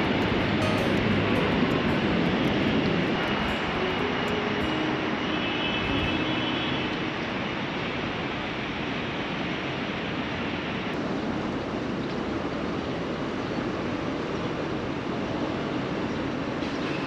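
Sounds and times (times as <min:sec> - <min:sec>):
harbour hum: 0:00.0 - 0:09.4.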